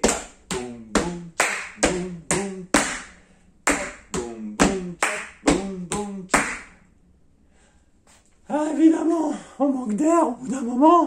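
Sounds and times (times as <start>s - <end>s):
short vocal syllables: 0.0s - 3.0s, 3.7s - 6.6s
rhythmic hand claps: 0.0s - 6.8s.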